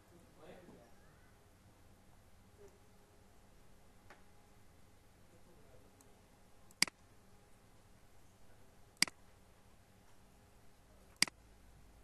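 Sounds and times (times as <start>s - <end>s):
faint steady hum: 0.0s - 12.0s
computer mouse clicks: 6.7s - 7.0s.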